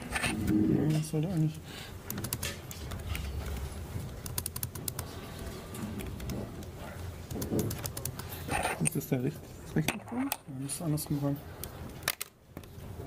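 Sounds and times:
low room hum: 0:00.0 - 0:13.0
laptop and cable clicks and taps: 0:02.0 - 0:05.1, 0:07.3 - 0:08.3, 0:12.0 - 0:12.7.

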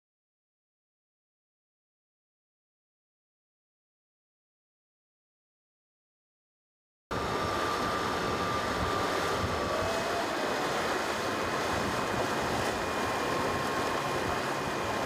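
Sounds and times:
rushing water: 0:07.2 - 0:15.0
wind buffeting microphone: 0:07.2 - 0:15.0.

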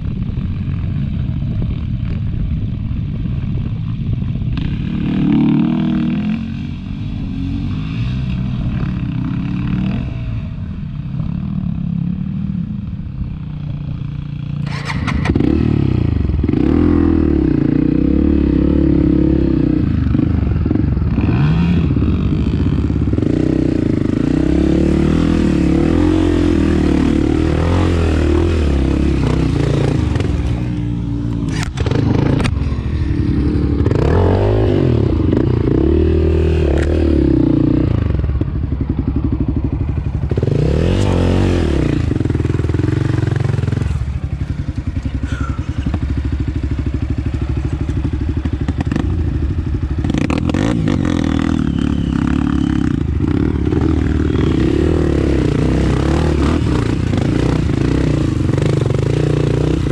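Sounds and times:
motorbike engine revving: 0:14.6 - 0:59.9.

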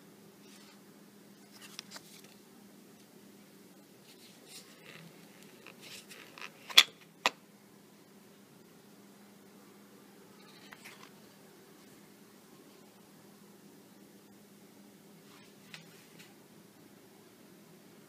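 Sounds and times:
faint steady hum: 0:00.0 - 0:18.0
paper card rustling: 0:01.4 - 0:02.4.

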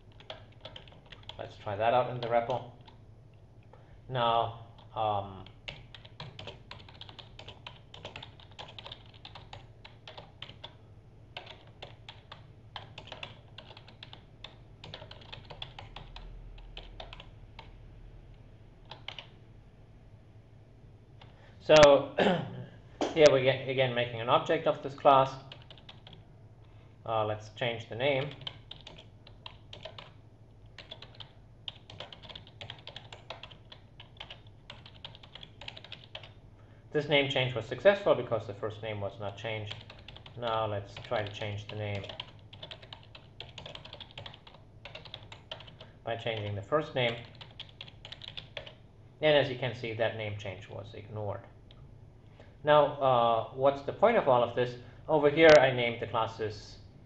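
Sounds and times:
computer keyboard typing: 0:00.0 - 0:03.0, 0:04.8 - 0:10.8, 0:11.4 - 0:17.8, 0:18.8 - 0:19.4, 0:25.4 - 0:26.2, 0:28.0 - 0:36.4, 0:39.3 - 0:48.8
faint low hum: 0:00.0 - 0:57.0.

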